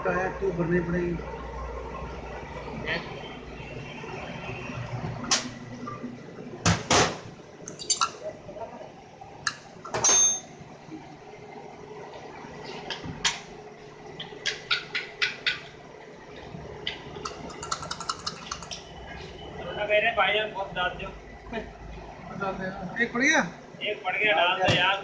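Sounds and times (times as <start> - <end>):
metal parts clicking and clinking: 7.7 - 8.2.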